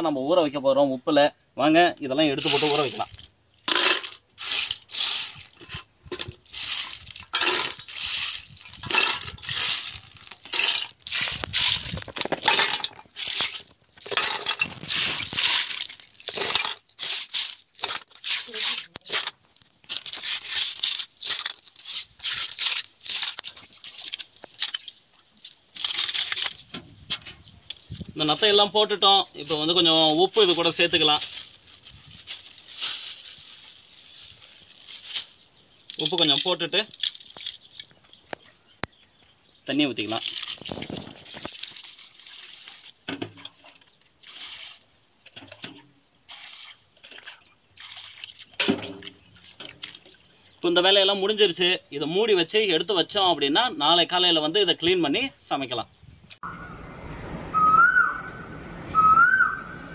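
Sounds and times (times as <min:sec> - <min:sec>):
jug scooping water splashes: 0:22.2 - 0:25.0, 0:40.0 - 0:50.4.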